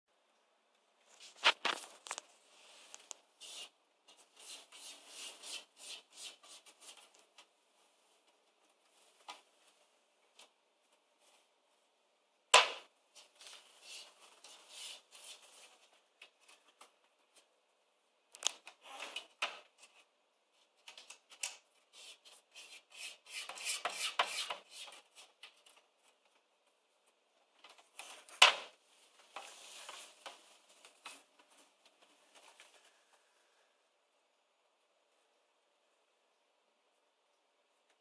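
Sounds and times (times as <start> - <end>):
cat scratching on wood: 3.4 - 7.2
sharp knocks on wooden panels: 12.6 - 12.9.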